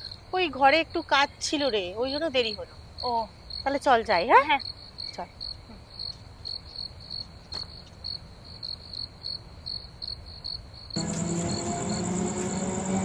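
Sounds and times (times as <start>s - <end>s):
crickets chirping: 0.0s - 13.0s
steady low tones: 11.0s - 13.0s.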